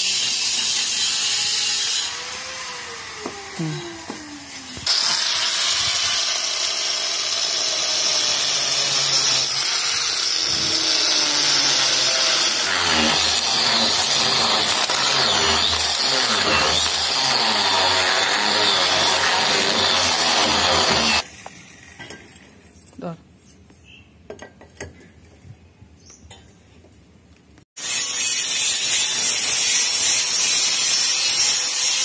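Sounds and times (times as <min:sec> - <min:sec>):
angle grinder cutting stone: 0:00.0 - 0:21.3, 0:27.8 - 0:32.0.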